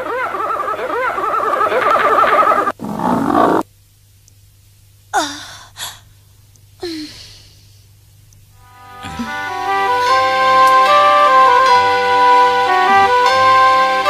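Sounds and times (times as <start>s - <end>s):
short vocal sounds dropping in pitch: 9.0s - 9.4s.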